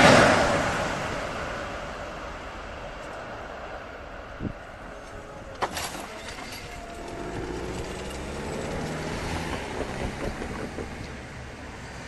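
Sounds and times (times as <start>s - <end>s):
barrier mechanism clunk: 5.5s - 11.2s.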